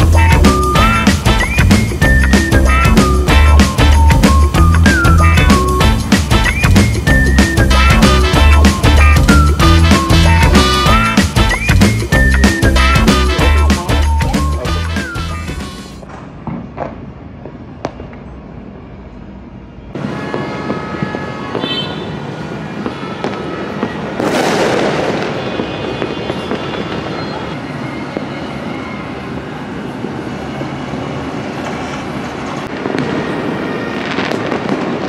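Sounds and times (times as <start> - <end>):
fireworks crackling and popping: 0.0 - 18.4, 20.0 - 21.9, 22.8 - 28.4, 32.6 - 35.0
single firecracker pops: 16.0 - 18.2, 22.8 - 27.2.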